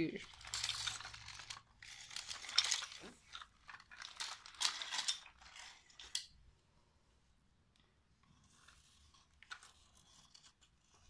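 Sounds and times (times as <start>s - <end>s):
toy mechanism clicking and rattling: 0.0s - 6.3s.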